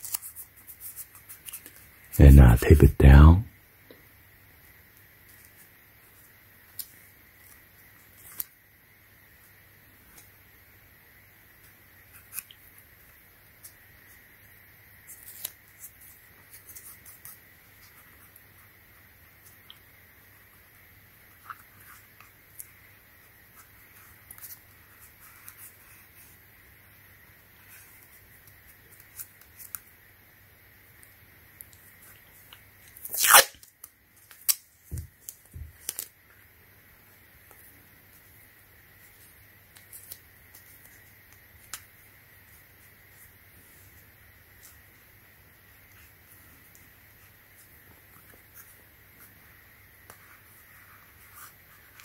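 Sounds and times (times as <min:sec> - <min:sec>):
tape clicking and crinkling: 0:31.0 - 0:36.3, 0:39.6 - 0:42.0
masking tape crinkling: 0:32.8 - 0:36.1
masking tape ripping: 0:33.0 - 0:33.7.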